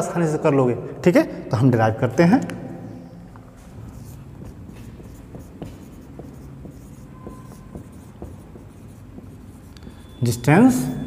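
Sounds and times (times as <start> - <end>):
marker pen writing on whiteboard: 3.4 - 11.0
marker squeak: 3.9 - 11.0.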